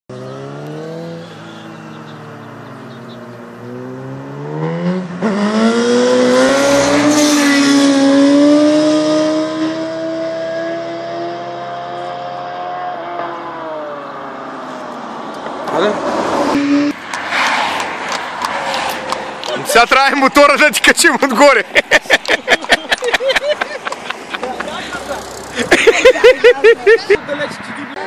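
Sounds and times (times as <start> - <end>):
motorcycle engine revving: 0.1 - 14.2, 24.9 - 25.8.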